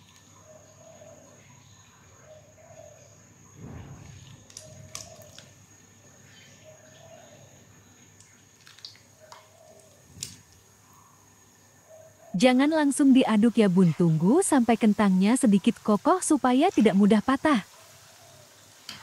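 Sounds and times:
fries sizzling with pops: 3.6s - 5.9s, 12.6s - 19.0s.

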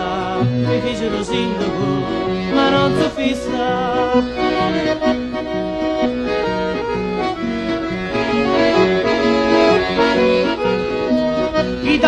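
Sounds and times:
lively folk melody: 0.0s - 12.0s.

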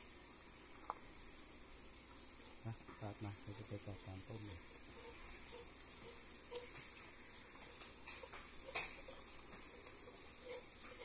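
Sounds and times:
food sizzling in a pan: 0.0s - 11.0s
kitchen utensils clicking: 7.7s - 11.0s.

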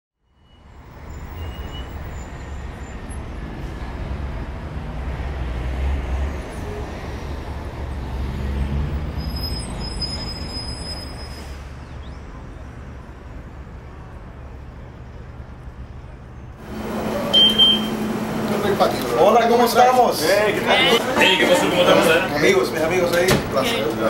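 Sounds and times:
low vehicle rumble: 3.2s - 24.0s
faint high whining tones: 16.6s - 19.0s.

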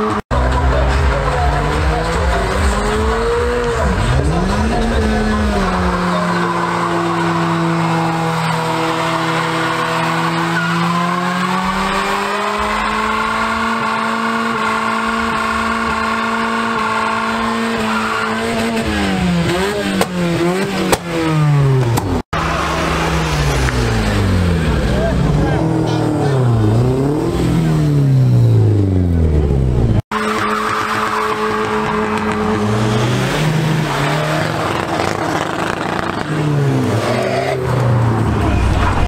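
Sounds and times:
car engine revving: 0.0s - 39.0s
tyres squealing: 0.8s - 18.8s.

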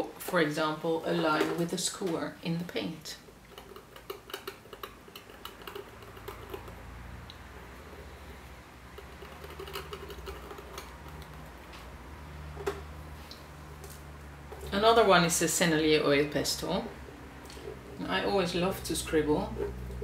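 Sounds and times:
steady low hum: 0.0s - 20.0s
skewer scratching paint: 3.2s - 11.7s, 13.7s - 20.0s.

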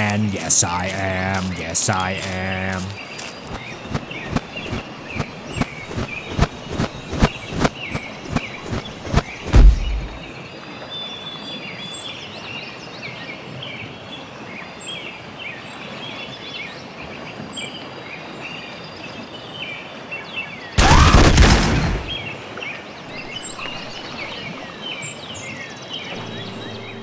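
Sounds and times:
small birds chirping: 0.0s - 10.4s
loud pistol fire: 20.8s - 22.2s.

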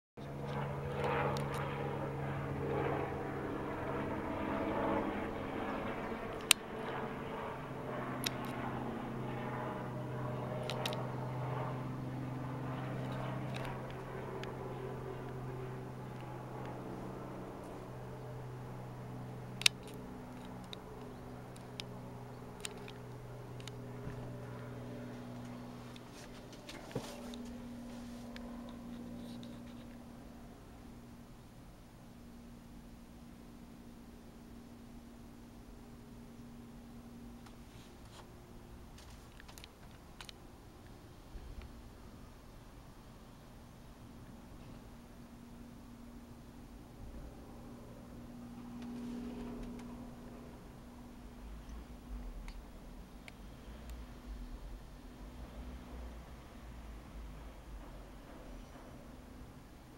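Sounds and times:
helicopter rotor and engine drone: 0.2s - 59.9s
sharp clicks: 19.6s - 23.8s.

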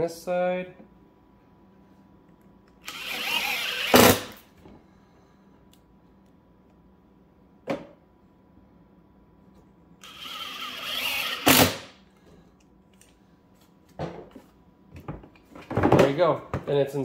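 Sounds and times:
cordless drill driving a screw: 2.8s - 4.4s, 10.0s - 11.9s.

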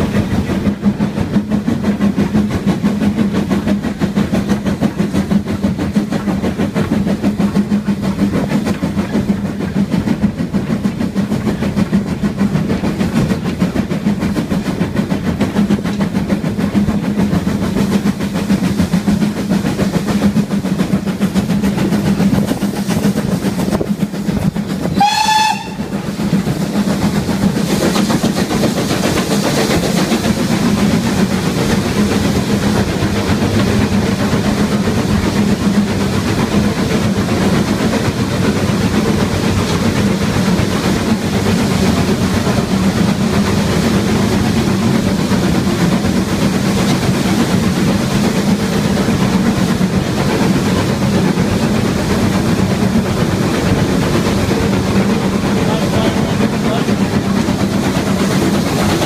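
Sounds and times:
train wheels rolling on rails: 0.0s - 59.0s
steam whistle blast: 24.9s - 26.0s.

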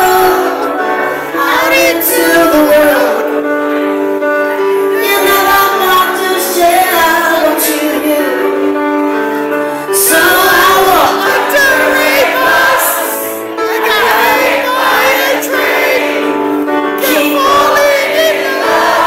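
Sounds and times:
woman singing into a microphone: 0.0s - 3.8s, 4.5s - 9.2s, 9.8s - 13.0s
keyboards: 0.0s - 19.0s.

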